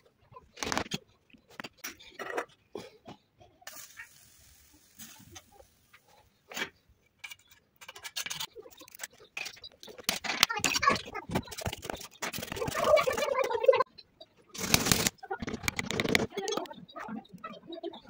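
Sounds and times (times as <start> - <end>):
faint hiss of molten lead: 3.7 - 6.0.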